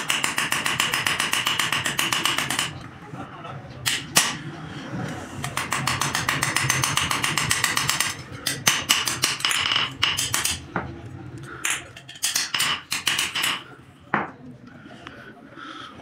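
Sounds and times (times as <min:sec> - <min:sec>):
hammer striking metal on anvil: 0:00.0 - 0:02.7, 0:11.6 - 0:13.6.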